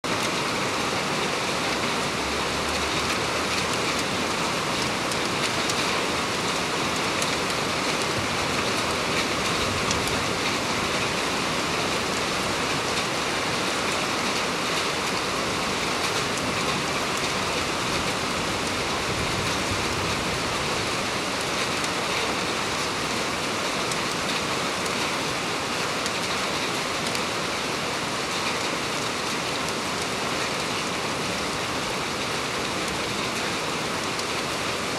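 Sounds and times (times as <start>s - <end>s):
heavy rain pouring: 0.0s - 34.9s
raindrops ticking: 1.7s - 13.9s.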